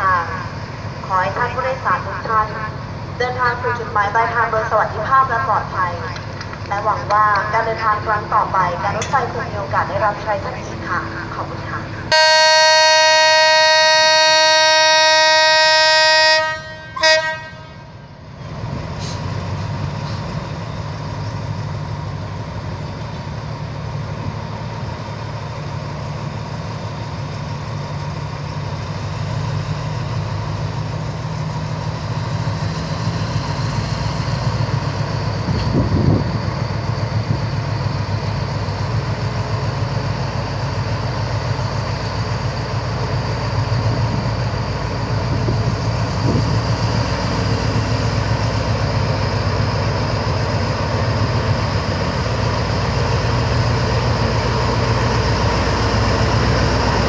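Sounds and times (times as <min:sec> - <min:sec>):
diesel engine rumbling: 0:00.0 - 0:57.0
locomotive horn blast: 0:12.1 - 0:18.0.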